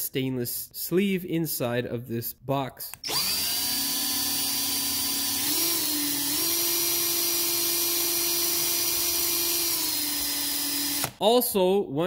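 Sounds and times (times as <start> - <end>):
cordless drill whining: 3.0 - 11.2.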